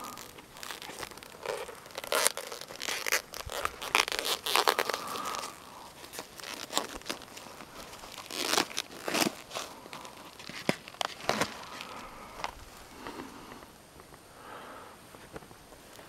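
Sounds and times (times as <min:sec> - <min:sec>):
plastic wrapper crinkling: 0:00.0 - 0:13.2.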